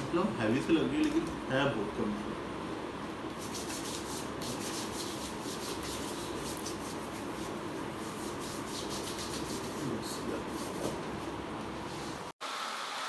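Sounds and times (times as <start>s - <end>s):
steady background hum: 0.0s - 12.4s
skin rubbing on skin: 3.3s - 11.0s.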